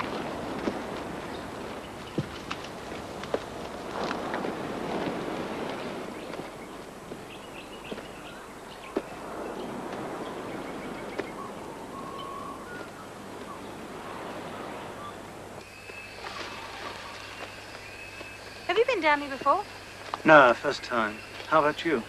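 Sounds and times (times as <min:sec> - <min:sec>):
rustling hiss: 0:00.0 - 0:22.0
whistled bird calls: 0:09.5 - 0:13.8, 0:14.8 - 0:19.0.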